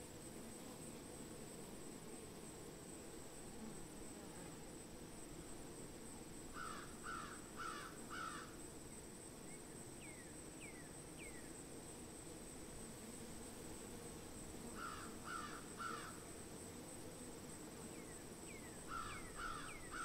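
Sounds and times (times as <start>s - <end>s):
crow cawing: 6.6s - 8.5s, 14.8s - 16.2s, 18.9s - 20.0s.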